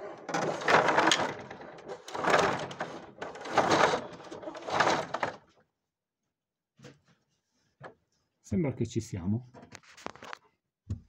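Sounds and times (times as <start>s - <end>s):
wooden roller shutter rattling: 0.0s - 5.5s.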